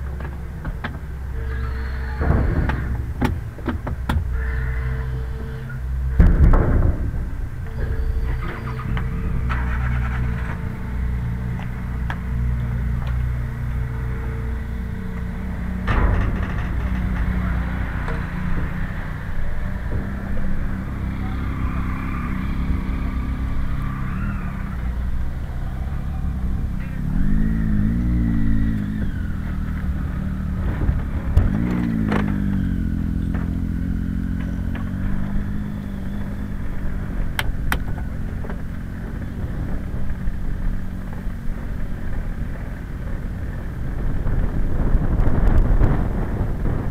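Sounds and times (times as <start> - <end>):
steady low rumble: 0.0 - 46.9
vehicles driving past and accelerating: 0.0 - 46.9.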